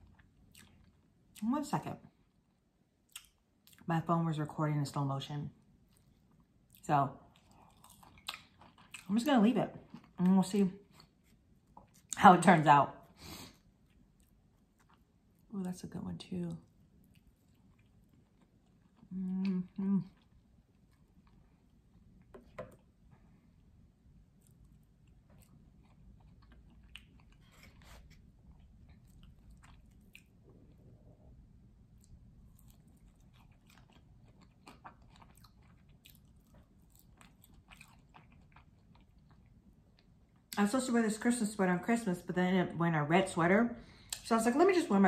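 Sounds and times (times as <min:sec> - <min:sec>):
woman chewing food: 0:00.0 - 0:01.4, 0:05.6 - 0:09.1, 0:13.0 - 0:15.5, 0:16.6 - 0:40.6
woman humming: 0:19.1 - 0:20.1.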